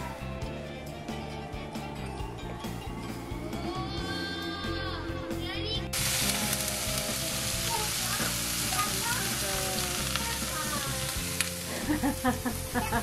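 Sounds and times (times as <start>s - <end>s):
soft background music: 0.0s - 13.0s
steaks sizzling in frying pan: 5.9s - 13.0s.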